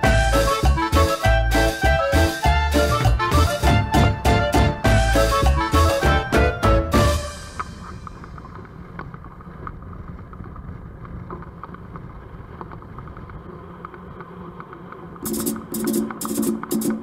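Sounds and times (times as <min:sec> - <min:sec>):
low wind rumble: 0:06.9 - 0:15.3.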